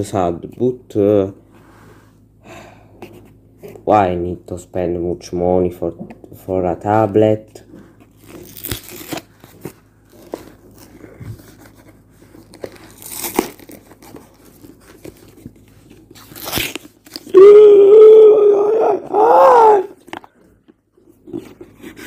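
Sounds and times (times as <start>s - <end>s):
packaging rustling and crunching: 8.1s - 17.4s
person groaning loudly: 17.3s - 20.0s.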